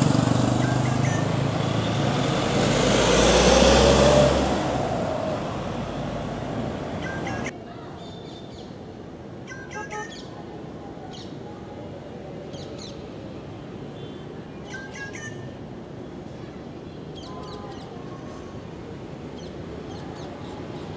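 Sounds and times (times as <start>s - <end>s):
bird chirping calls: 0.5s - 2.2s, 6.9s - 8.8s, 9.4s - 10.3s, 14.0s - 15.6s
background noise: 1.3s - 14.7s.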